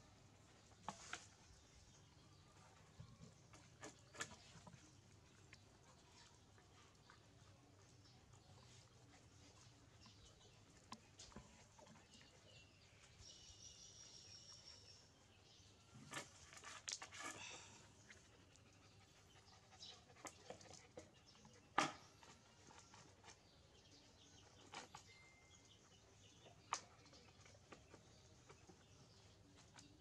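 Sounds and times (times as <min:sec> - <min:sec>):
dog panting: 0:18.2 - 0:21.6.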